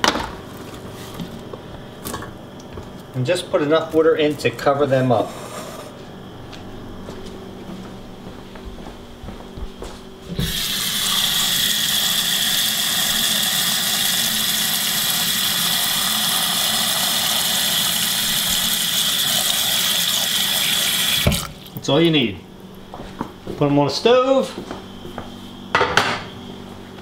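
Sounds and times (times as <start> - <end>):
faucet water filling metal pot: 10.4 - 21.6.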